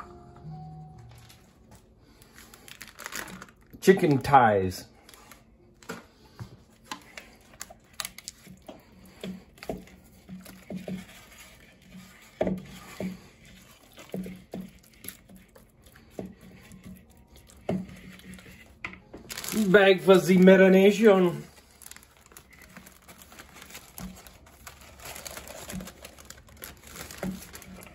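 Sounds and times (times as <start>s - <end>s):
spatula knocking and scraping bowl: 8.5s - 19.1s.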